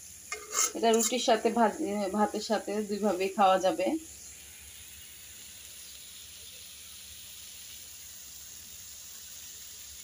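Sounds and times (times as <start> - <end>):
food sizzling in oil: 0.0 - 10.0.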